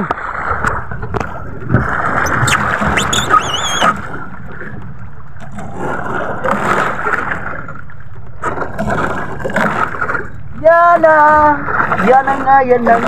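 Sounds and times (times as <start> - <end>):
water noise: 0.0 - 13.0
wind: 0.0 - 13.0
wavering high squeal: 2.2 - 4.0
boat engine running: 2.2 - 4.3.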